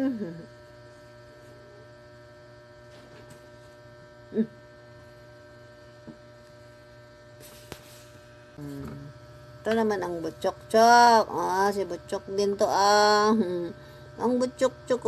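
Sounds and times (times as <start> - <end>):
steady electrical hum: 0.0 - 15.0.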